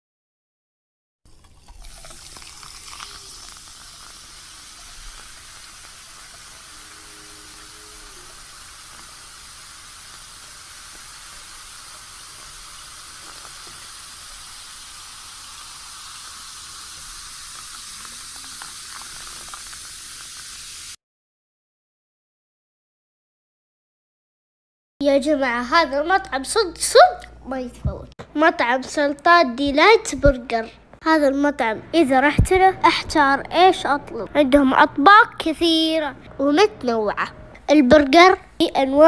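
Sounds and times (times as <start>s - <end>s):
carbonated soda fizzing: 1.3s - 21.0s
soda pouring over ice: 1.3s - 21.0s.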